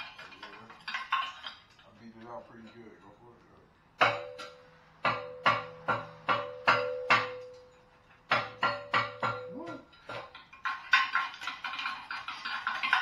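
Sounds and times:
metal bar striking pipe: 4.0 - 10.4
pipe ringing: 4.0 - 11.1.

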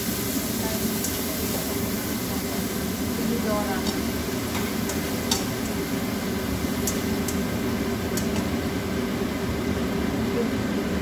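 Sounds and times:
food stir-frying in pan: 0.0 - 10.9
spatula clicking against pan: 3.8 - 5.8, 6.8 - 7.4, 8.1 - 8.5.

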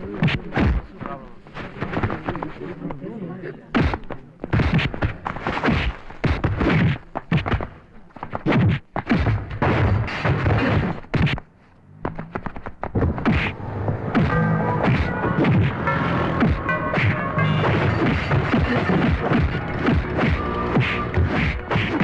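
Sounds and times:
punch impacts: 3.8 - 7.8, 8.4 - 22.0
whooshes: 12.2 - 22.0
music with held notes: 13.7 - 22.0.

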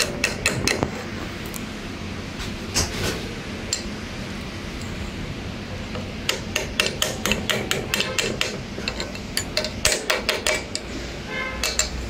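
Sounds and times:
metal rod tapping metal housing: 0.0 - 0.9, 5.9 - 10.9, 11.6 - 12.0.

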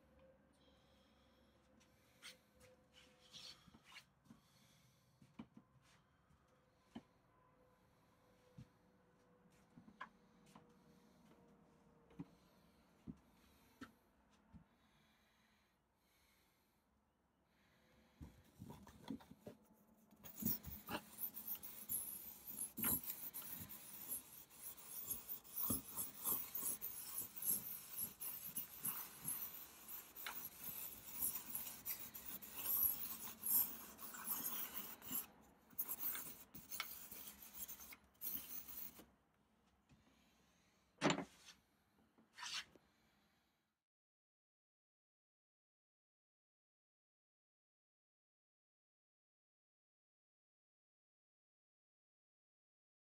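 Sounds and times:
drawing stick scratching on canvas: 18.6 - 39.0.

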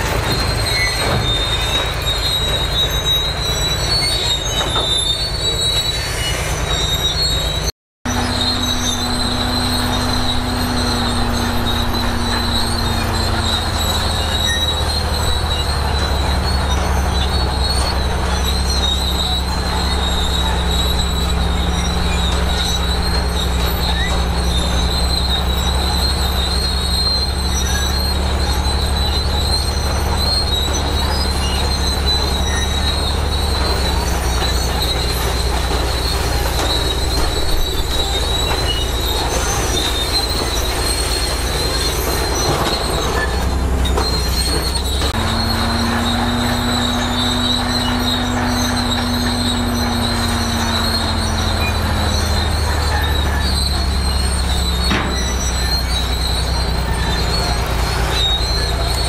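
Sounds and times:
bulldozer diesel engine running: 0.0 - 59.0
high-pitched squeal: 0.0 - 59.0.

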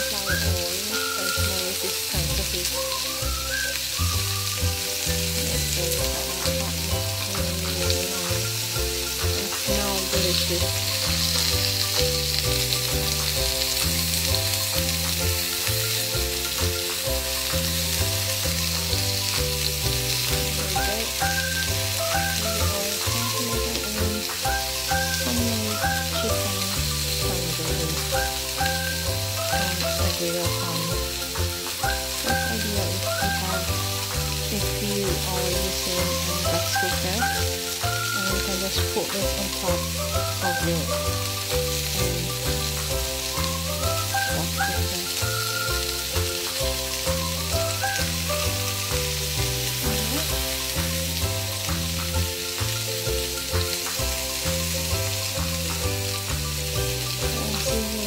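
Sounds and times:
background music with bass line: 0.0 - 58.0
chicken sizzling on a griddle: 0.0 - 58.0.

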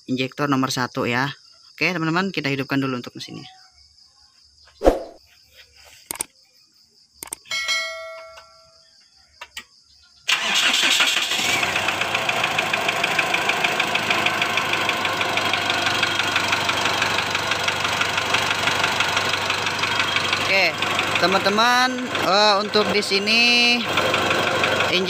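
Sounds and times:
diesel engine idling with knock: 11.6 - 25.0.

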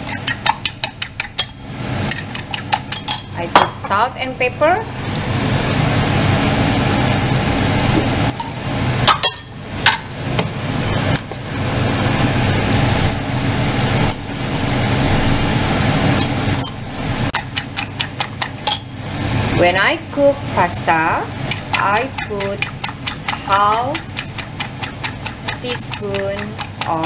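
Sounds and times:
salt and pepper grinder grinding: 0.0 - 3.0, 17.4 - 18.8, 21.5 - 27.0
fork beating eggs in bowl: 0.0 - 3.4, 17.3 - 18.8, 21.4 - 27.0.

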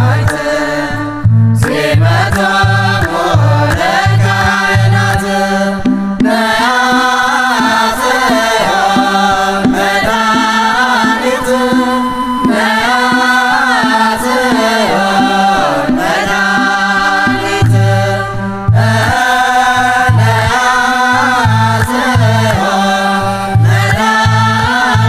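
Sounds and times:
voices chanting a slow melody: 0.0 - 25.0
low held drone tone: 7.2 - 25.0.

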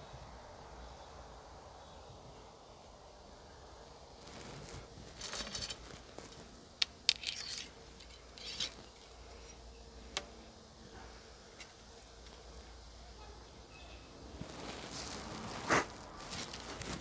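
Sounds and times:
scraping rasps: 4.2 - 10.2.

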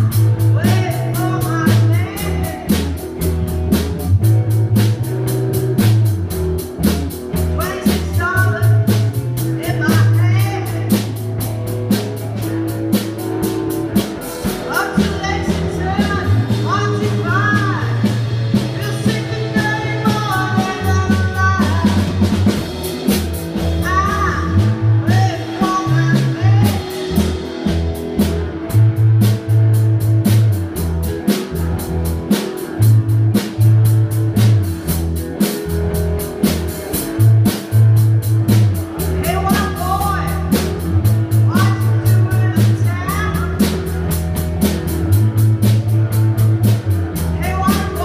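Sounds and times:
bass guitar: 0.0 - 48.0
drum kit: 0.0 - 48.0
electric guitars: 0.0 - 48.0
woman singing: 0.5 - 2.8, 9.6 - 11.0, 14.7 - 22.2, 23.8 - 27.0, 39.2 - 40.6, 41.5 - 43.7, 47.4 - 48.0.

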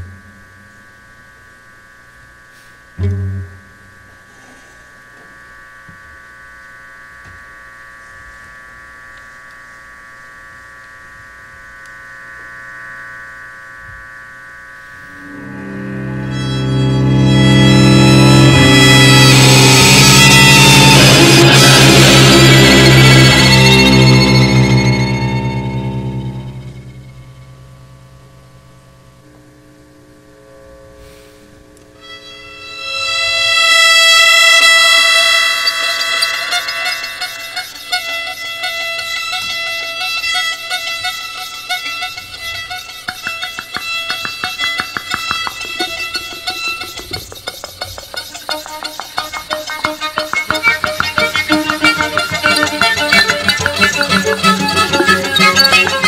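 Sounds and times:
electric guitar and string quartet: 3.0 - 3.7, 15.2 - 27.0, 32.0 - 56.0.

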